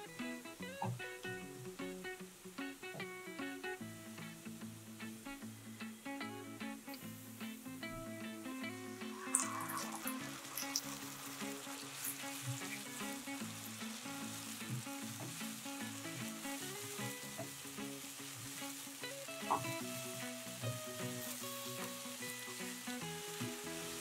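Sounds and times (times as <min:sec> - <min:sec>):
background music: 0:00.0 - 0:24.0
onions sizzling in hot oil: 0:00.0 - 0:24.0
wooden spatula scraping a pan: 0:09.0 - 0:18.8.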